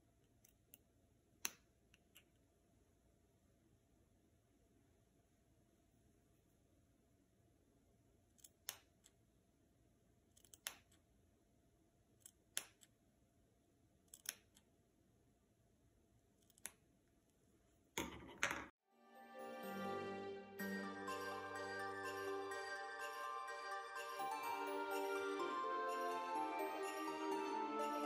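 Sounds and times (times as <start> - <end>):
scissors snipping fabric: 10.3 - 11.0, 12.2 - 12.9, 14.0 - 14.7, 16.4 - 16.8
soft music: 18.8 - 28.0.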